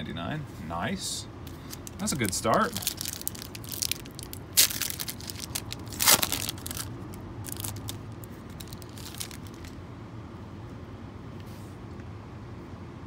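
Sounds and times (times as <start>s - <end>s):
wrapper crinkling: 1.5s - 9.8s
foil wrapper ripping: 1.7s - 9.8s.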